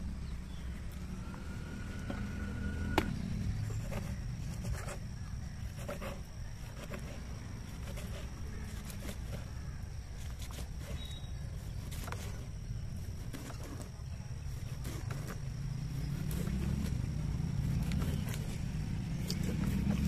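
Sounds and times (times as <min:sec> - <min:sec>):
knife cutting fish: 0:05.6 - 0:17.0.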